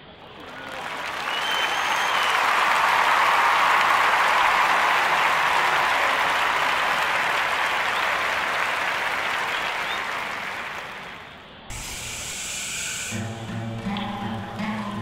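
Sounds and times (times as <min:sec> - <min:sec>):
stadium crowd applauding: 0:00.1 - 0:11.4.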